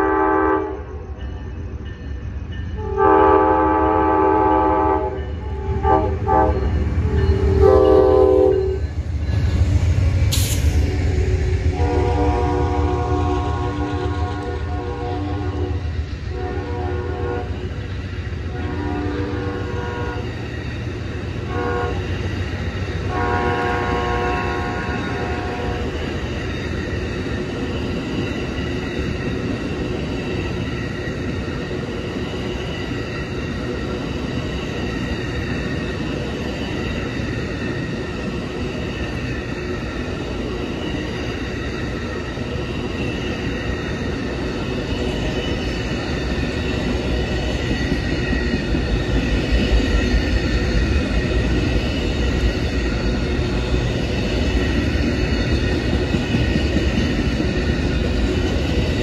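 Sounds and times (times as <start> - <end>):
train horn blasts: 0.0 - 1.1, 2.8 - 8.9, 11.7 - 17.6, 18.5 - 20.3, 21.4 - 22.1, 23.1 - 25.9
train wheels rumbling on rail: 0.0 - 59.0.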